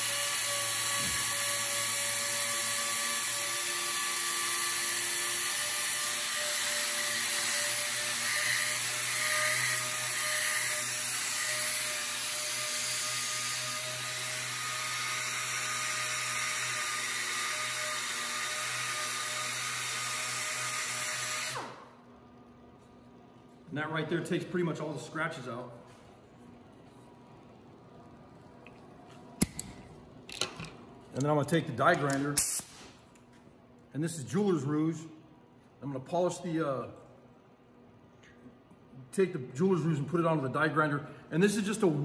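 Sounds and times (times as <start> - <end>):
air motor and abrasive hiss: 0.0 - 21.9
air sander whining: 0.0 - 22.0.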